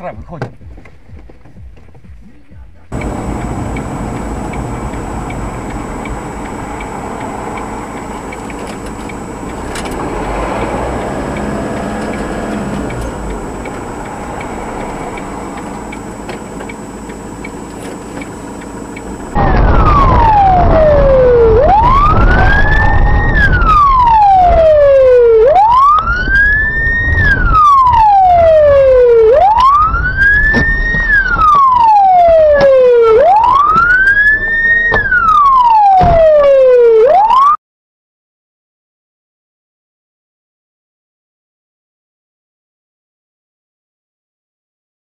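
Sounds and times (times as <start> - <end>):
vehicle road noise: 0.4 - 37.5
siren wailing: 2.9 - 17.6, 19.0 - 37.6.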